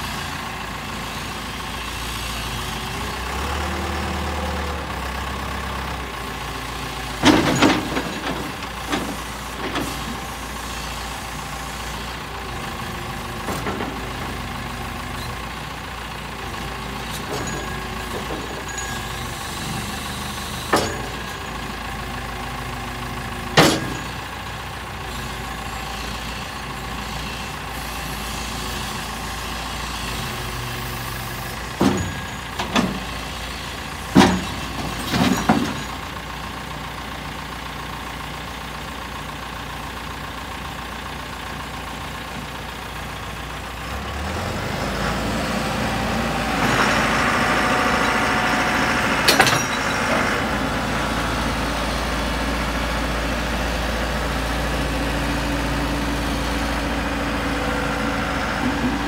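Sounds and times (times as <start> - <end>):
diesel engine idling: 0.0 - 59.0
hydraulics working: 0.4 - 37.5
metal clunks: 7.2 - 10.2, 20.6 - 21.3, 23.6 - 24.2, 31.7 - 33.2, 34.1 - 36.0.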